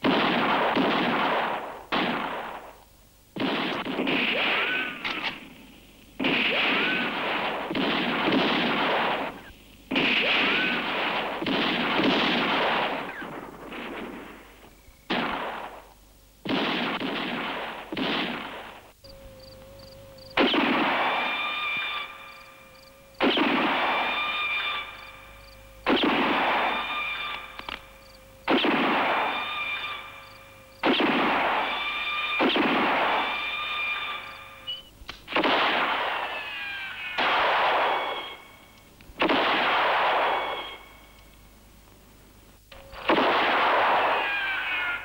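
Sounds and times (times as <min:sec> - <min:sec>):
gunshots echoing: 0:00.0 - 0:19.0, 0:19.9 - 0:36.6, 0:37.2 - 0:41.0, 0:42.9 - 0:44.5
bullet whine: 0:06.2 - 0:15.9, 0:16.5 - 0:36.4, 0:37.2 - 0:41.3, 0:42.7 - 0:44.4.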